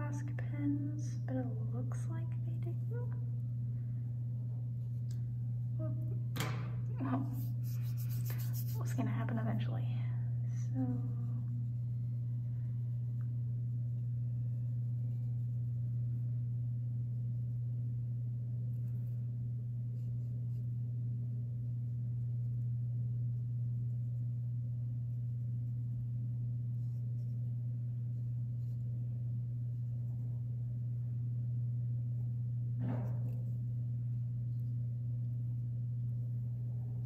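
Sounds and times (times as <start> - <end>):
steady low hum: 0.0 - 37.0
pen scratching on paper: 7.3 - 9.0.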